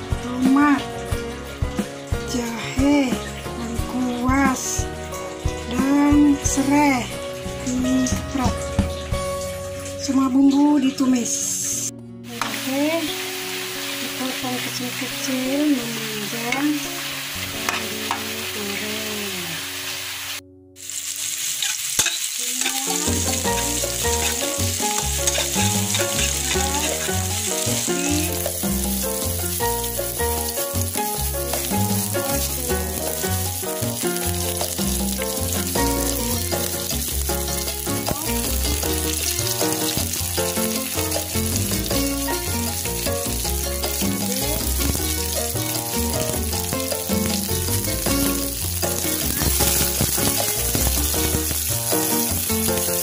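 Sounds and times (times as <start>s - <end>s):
background music: 0.0s - 53.0s
garlic sizzling in wok: 0.0s - 53.0s
metal spatula in wok: 20.8s - 53.0s.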